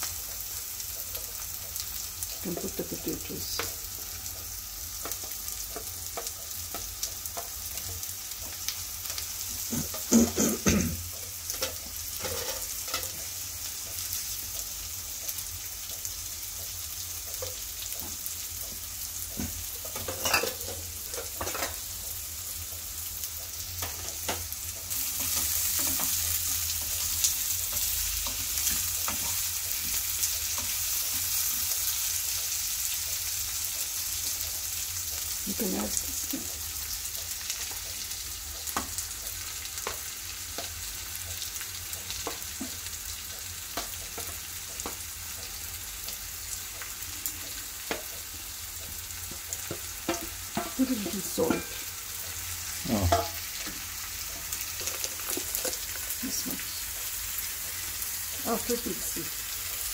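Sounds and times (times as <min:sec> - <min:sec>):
potatoes sizzling in frying pan: 0:00.0 - 0:59.9
spatula scraping a pan: 0:11.5 - 0:13.3.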